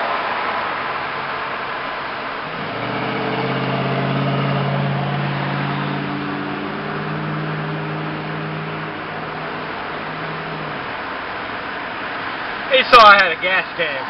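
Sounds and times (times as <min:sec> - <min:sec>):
road noise: 0:00.0 - 0:14.0
truck engine droning: 0:00.6 - 0:12.7
deep hum: 0:02.3 - 0:12.0.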